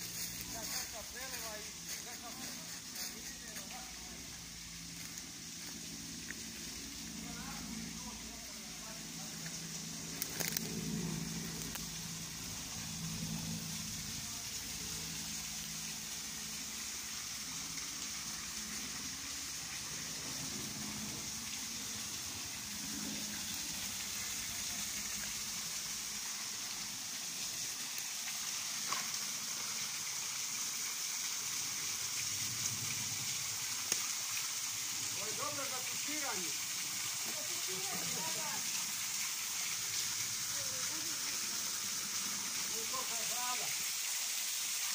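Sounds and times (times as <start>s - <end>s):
water splashing into pool: 9.3s - 44.9s.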